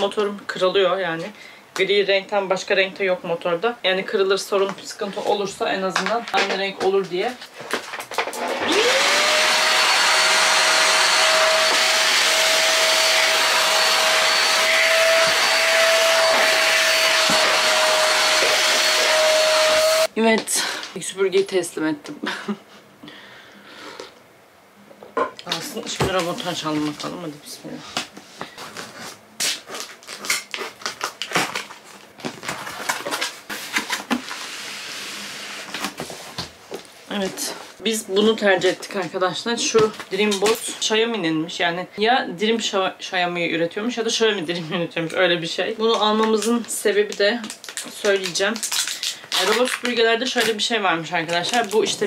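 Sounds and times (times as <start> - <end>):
vacuum cleaner motor whine: 8.4 - 20.1
cardboard packaging crackling: 28.5 - 34.5, 46.2 - 52.0.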